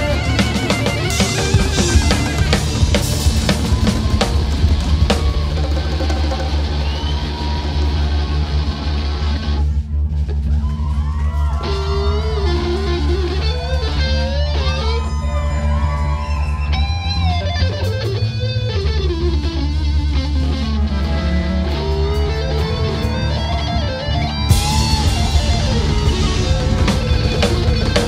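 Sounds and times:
electric guitar lead with bends: 0.0s - 6.4s, 11.6s - 28.0s
bass guitar: 0.0s - 28.0s
drums and cymbals: 0.0s - 28.0s.

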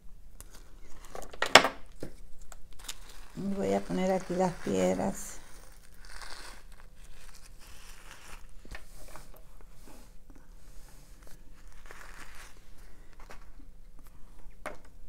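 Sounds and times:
plastic bag crinkling: 0.4s - 8.7s.

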